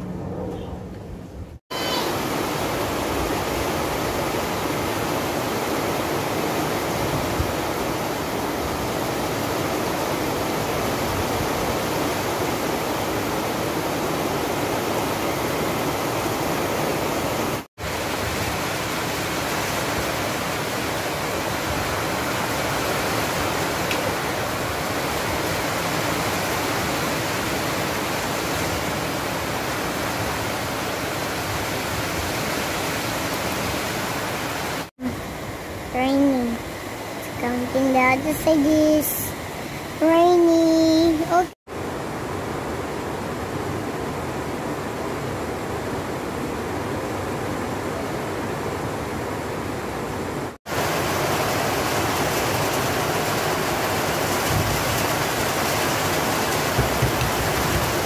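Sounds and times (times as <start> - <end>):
heavy rain on metal roofs: 1.7 - 39.2, 50.3 - 58.0.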